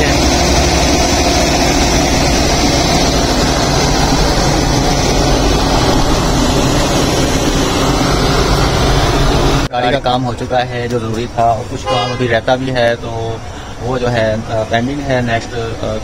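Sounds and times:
car engine idling: 0:00.0 - 0:09.7
air conditioning running: 0:00.0 - 0:16.0.

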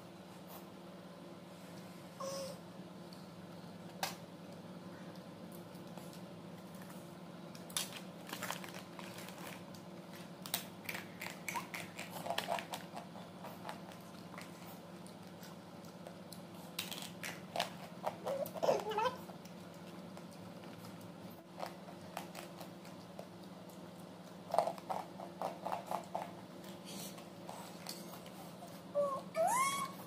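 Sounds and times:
snack crunching: 0:05.2 - 0:18.6, 0:19.3 - 0:28.2
plastic pouch crinkling: 0:07.7 - 0:09.7.

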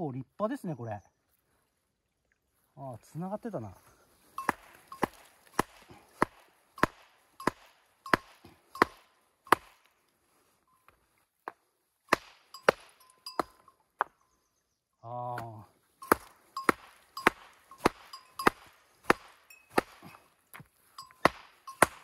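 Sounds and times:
hammer striking rock: 0:04.4 - 0:09.9, 0:11.5 - 0:14.2, 0:15.4 - 0:22.0.

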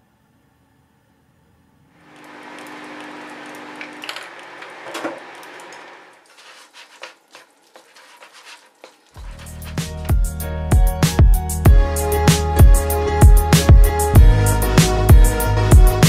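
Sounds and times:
chopsticks scraping in paper cup: 0:06.2 - 0:10.1.

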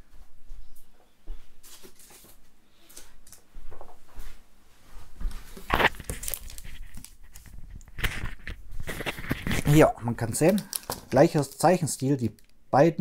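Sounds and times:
objects knocking and rustling: 0:05.5 - 0:11.6.

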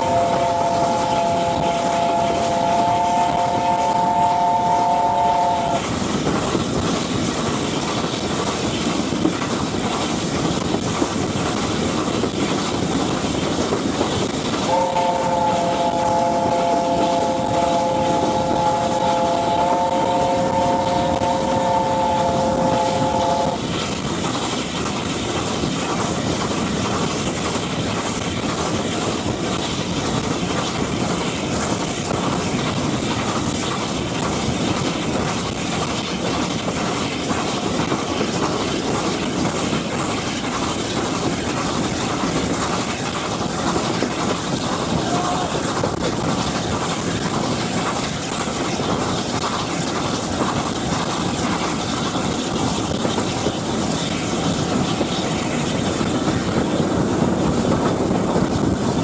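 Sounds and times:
steam locomotive chime whistle: 0:00.0 - 0:05.8, 0:14.7 - 0:23.6
train rushing and clattering: 0:00.0 - 0:59.0.

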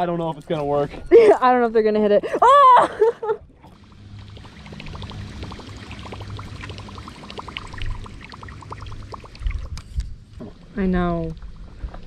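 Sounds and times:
steady low hum: 0:00.4 - 0:12.0
water lapping against boat hull: 0:03.5 - 0:12.0.

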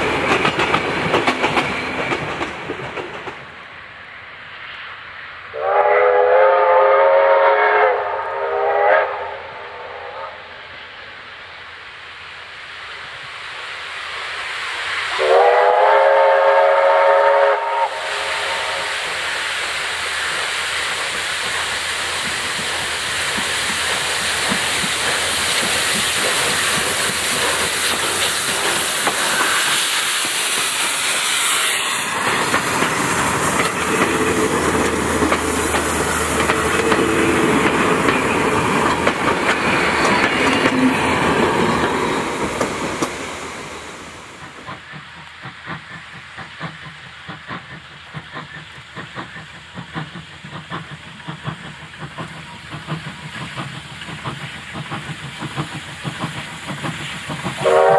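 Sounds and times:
steam locomotive running: 0:00.0 - 0:57.9
steam locomotive whistle: 0:05.5 - 0:10.6, 0:15.1 - 0:19.4, 0:29.1 - 0:32.2, 0:57.6 - 0:57.9.

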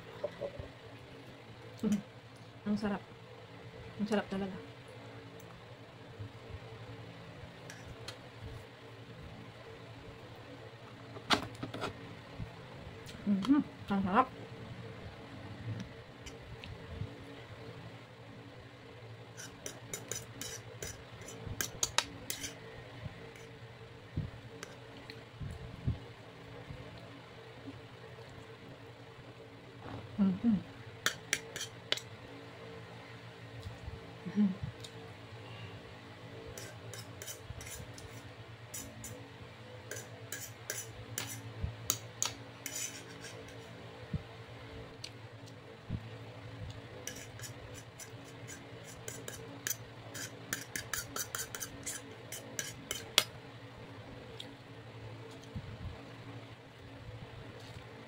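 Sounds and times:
low hum: 0:00.0 - 0:50.3
fork scraping on a plate: 0:19.4 - 0:22.6, 0:31.1 - 0:32.0, 0:36.5 - 0:39.2, 0:39.9 - 0:41.5, 0:42.6 - 0:43.7, 0:47.0 - 0:53.2.

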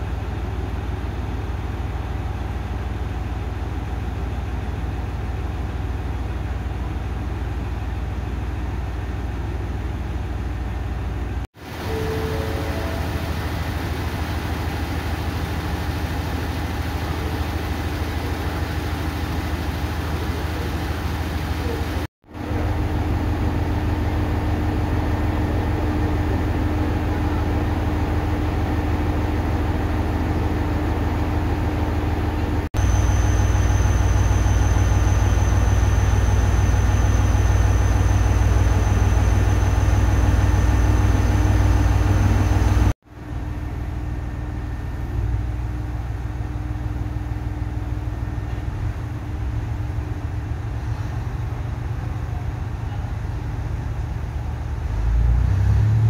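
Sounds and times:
diesel railcar engine idling: 0:00.0 - 0:56.0
thin high steady whine: 0:11.6 - 0:50.7.

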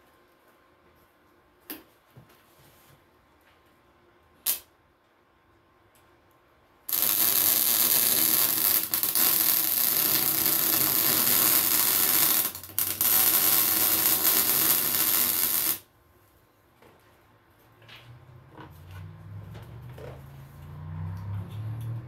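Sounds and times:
welding arc hissing: 0:06.9 - 0:15.9.

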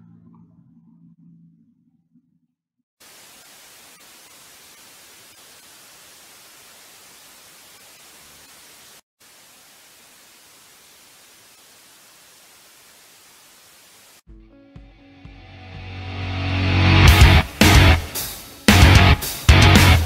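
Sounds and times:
static hiss: 0:03.0 - 0:14.2.

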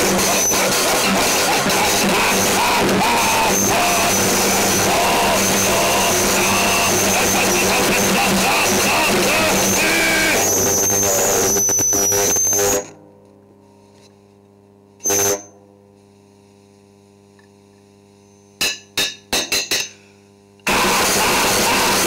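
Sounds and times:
distorted noise wall: 0:00.0 - 0:18.8, 0:20.0 - 0:22.0
high wavering whine: 0:00.0 - 0:18.8
steady low hum: 0:13.0 - 0:20.7.

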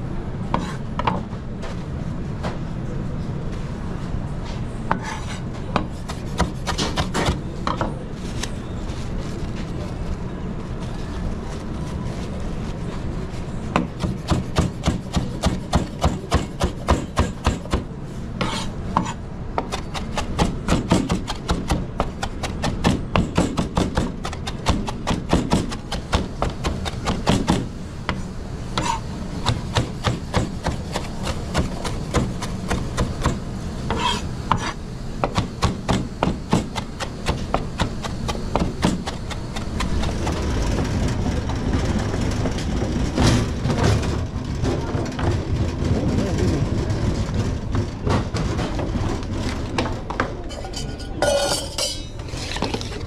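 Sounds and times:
knife chopping on board: 0:28.8 - 0:40.0.

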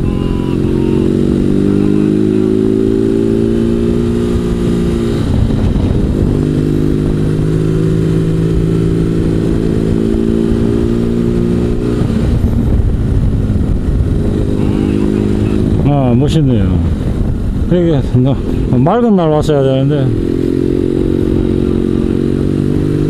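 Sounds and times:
motorcycle engine running: 0:00.0 - 0:23.0
wind rumbling on microphone: 0:00.0 - 0:23.0.

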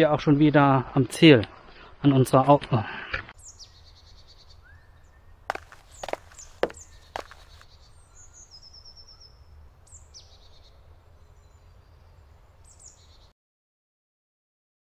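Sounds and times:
birdsong trill: 0:03.4 - 0:13.3.

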